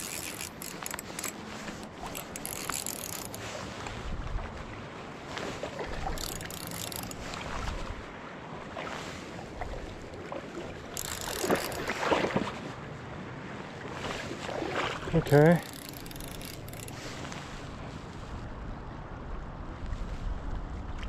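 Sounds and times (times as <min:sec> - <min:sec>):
river running over cobbles: 0:00.0 - 0:03.4, 0:05.9 - 0:07.6, 0:10.8 - 0:12.4, 0:14.6 - 0:17.7
water splashes and sloshes: 0:00.0 - 0:21.0.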